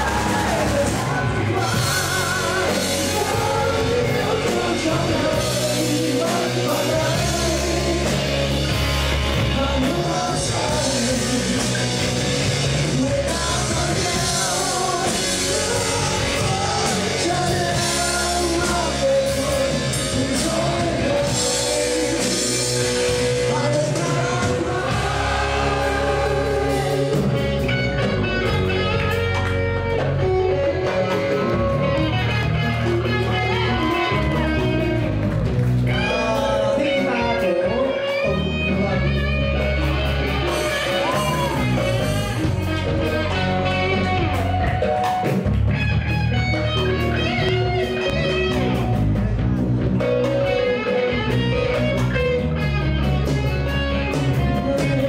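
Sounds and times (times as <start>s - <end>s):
man singing into microphone: 0.0s - 8.6s, 9.4s - 12.1s, 12.8s - 27.6s, 35.9s - 39.2s
drum kit: 0.0s - 55.0s
electric guitars: 0.0s - 55.0s.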